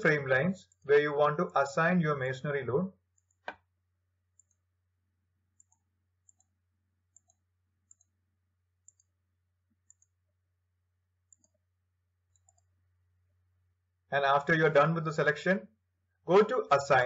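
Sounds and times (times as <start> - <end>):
computer mouse clicks: 3.1 - 3.7, 4.3 - 4.7, 5.6 - 8.2, 8.8 - 10.2, 11.3 - 11.6, 12.3 - 12.7.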